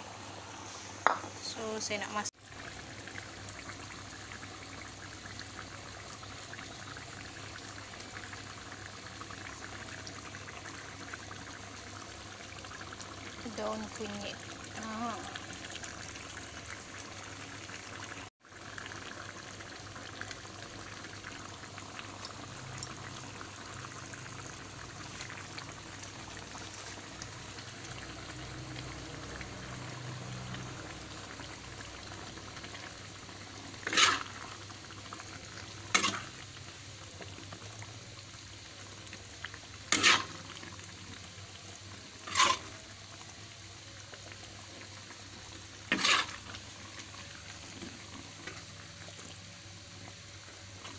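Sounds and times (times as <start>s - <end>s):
gravy simmering and sizzling: 0.0s - 50.9s
metal spatula scraping pot: 33.8s - 34.5s, 35.9s - 36.3s, 39.8s - 40.4s, 42.2s - 42.8s, 45.9s - 46.5s.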